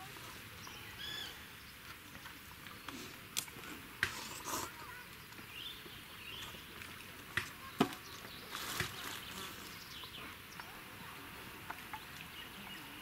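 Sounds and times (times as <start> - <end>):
faint bird chirps: 0.6 - 1.8.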